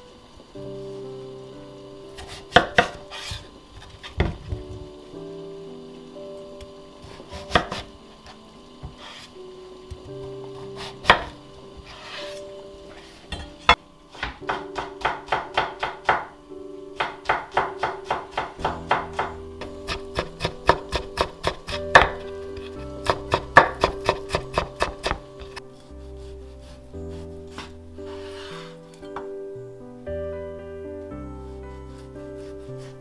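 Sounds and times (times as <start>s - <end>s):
soft background music: 0.0s - 33.0s
knife chopping on wooden board: 19.9s - 22.2s, 23.0s - 25.6s.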